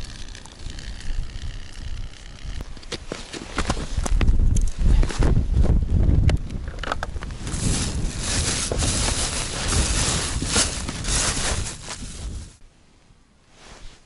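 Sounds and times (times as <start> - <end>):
plastic bag and cloth rustling: 7.3 - 12.6.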